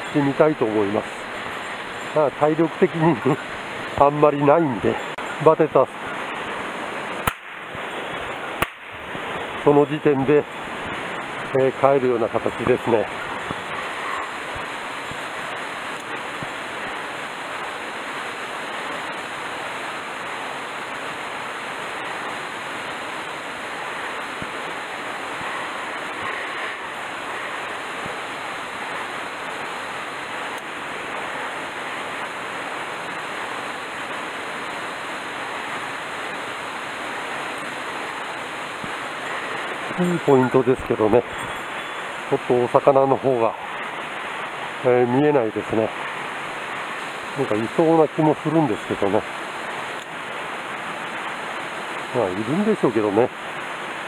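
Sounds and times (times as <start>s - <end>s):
stream rushing over rocks: 0.0s - 54.0s.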